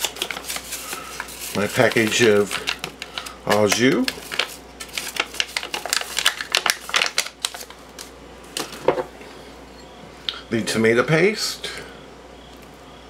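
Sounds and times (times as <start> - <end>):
packet crinkling and rattling: 0.0 - 8.8.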